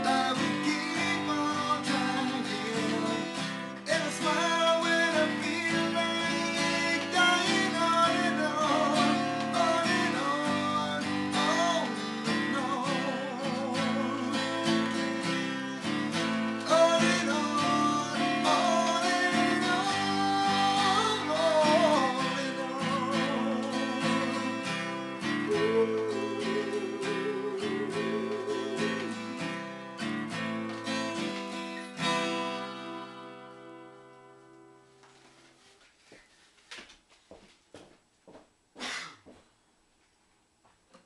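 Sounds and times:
man singing: 0.0s - 30.0s
acoustic guitar strumming: 0.0s - 35.8s.

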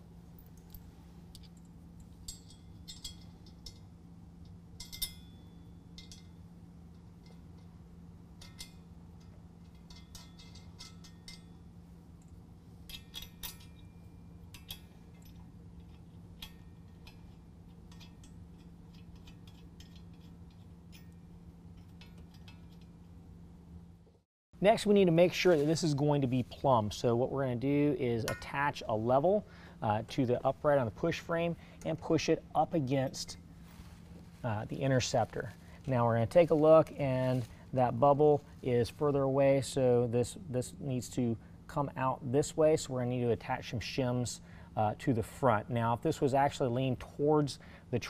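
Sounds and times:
steady low hum: 0.0s - 48.0s
metal washers and nuts clinking: 0.4s - 7.8s, 8.4s - 23.2s.

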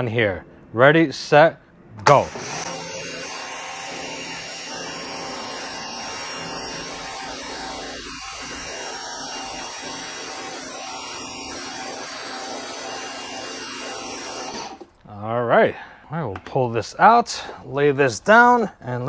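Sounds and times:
pressure washer motor and pump hum: 2.1s - 14.9s.

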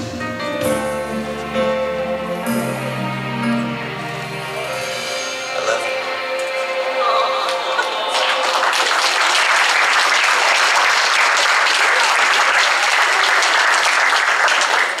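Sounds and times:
people applauding: 7.4s - 15.0s.

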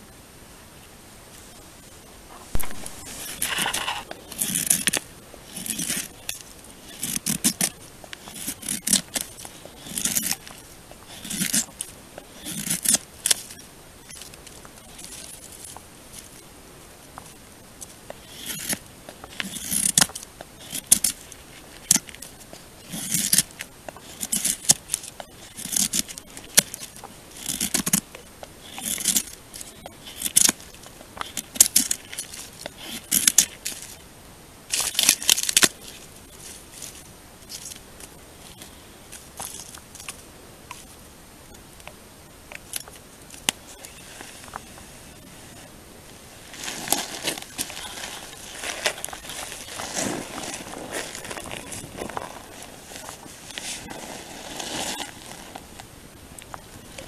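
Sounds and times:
knife scraping wooden stick: 2.4s - 15.8s, 18.1s - 34.0s.

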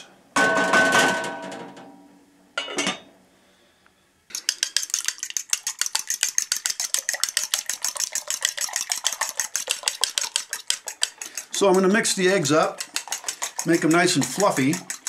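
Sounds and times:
fork beating eggs in bowl: 4.3s - 15.0s.

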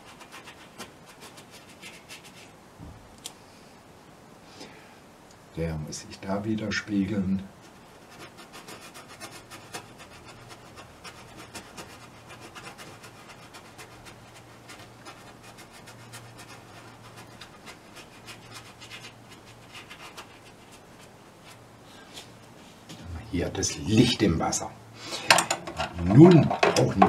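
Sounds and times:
brush scratching on canvas: 0.0s - 2.6s, 7.6s - 23.0s
faint low hum: 0.0s - 27.0s.

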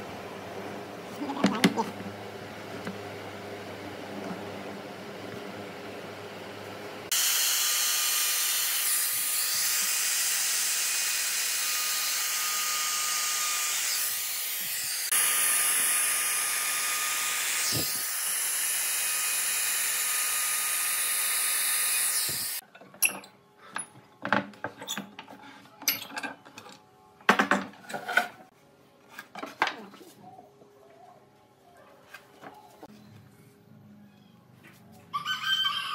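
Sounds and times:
router cutting wood: 7.1s - 22.6s.

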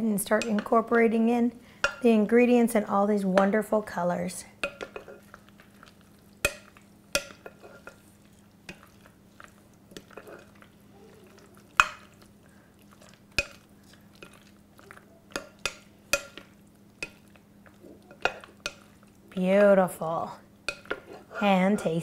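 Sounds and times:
spatula stirring pasta salad: 0.0s - 2.4s, 4.6s - 22.0s.

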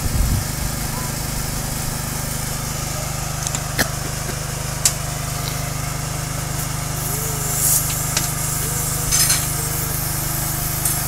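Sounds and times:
air compressor running: 0.0s - 11.0s.

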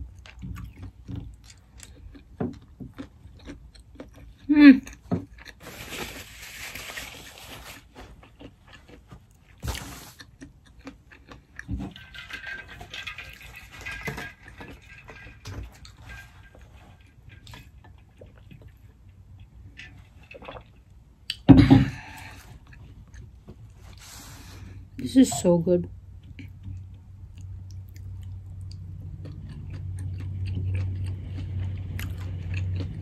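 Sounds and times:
paper napkin rustling: 5.6s - 8.2s.

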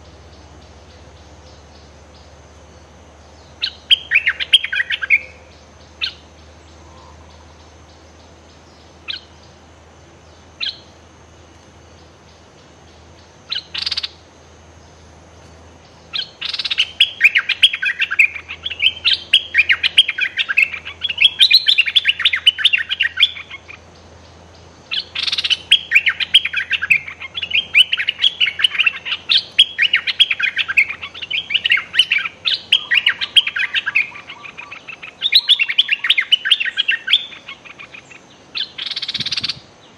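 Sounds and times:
bulbuls calling: 0.0s - 39.9s
harsh bird chattering: 13.5s - 14.2s, 24.9s - 39.6s.

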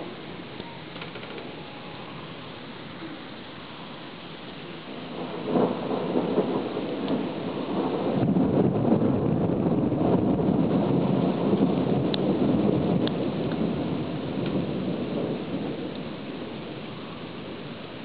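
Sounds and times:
rain falling: 0.0s - 18.0s
thunder rumbling: 4.6s - 18.0s.

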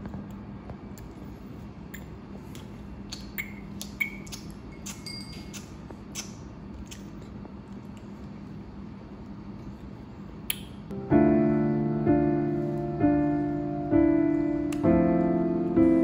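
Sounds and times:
steady low hum: 0.0s - 16.0s
baby mouth clicks and smacks: 3.1s - 8.1s.

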